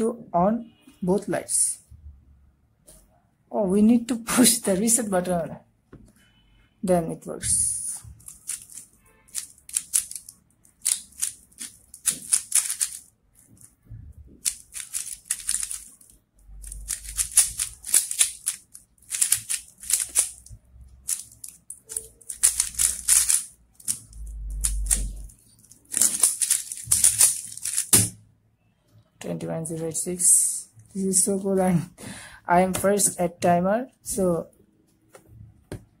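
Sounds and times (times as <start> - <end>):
puzzle cube plastic clacking: 8.1 - 13.7, 14.4 - 28.2.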